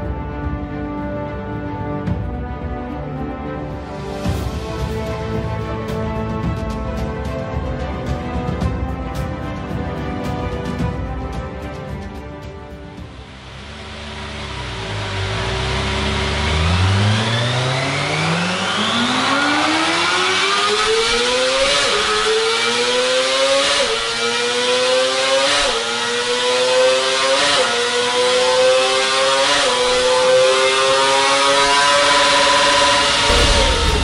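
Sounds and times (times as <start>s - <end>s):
motorcycle engine revving: 13.2s - 34.0s.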